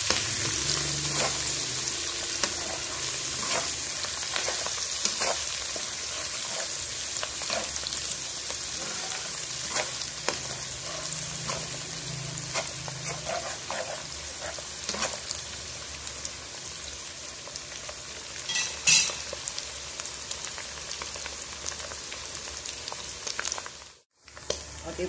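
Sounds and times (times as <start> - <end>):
paste sizzling in oil: 0.0 - 25.0
spatula stirring in wok: 0.1 - 15.6.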